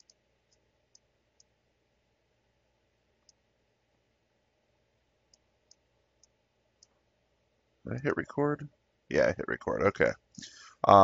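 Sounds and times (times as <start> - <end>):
computer mouse clicks: 0.0 - 1.5, 5.3 - 7.0.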